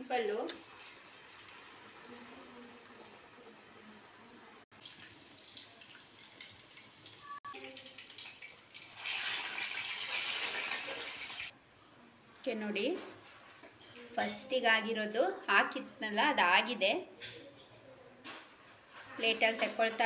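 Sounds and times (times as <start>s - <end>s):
oil sizzling and bubbling: 0.0s - 11.6s.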